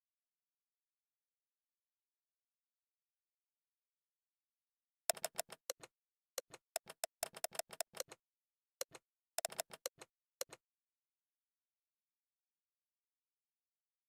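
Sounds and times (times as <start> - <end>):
phone keyboard clicks: 5.1 - 8.2, 8.8 - 10.6.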